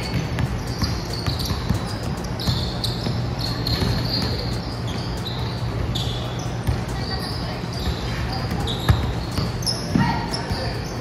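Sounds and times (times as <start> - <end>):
basketball bouncing on wooden floor: 0.0 - 4.4
sneaker squeaks: 0.0 - 11.0.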